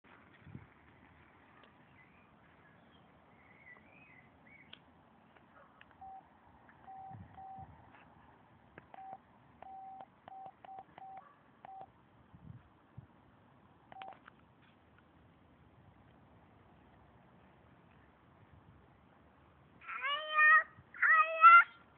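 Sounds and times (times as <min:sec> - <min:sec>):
birds chirping faintly: 0:00.9 - 0:07.6
faint electronic beeps: 0:06.0 - 0:07.7, 0:08.9 - 0:11.9, 0:13.9 - 0:14.2.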